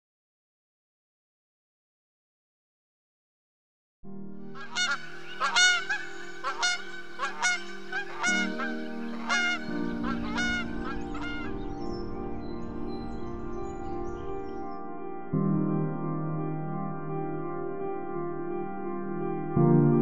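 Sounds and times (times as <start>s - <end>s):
sustained music chord: 4.4s - 20.0s
geese honking: 4.6s - 11.6s.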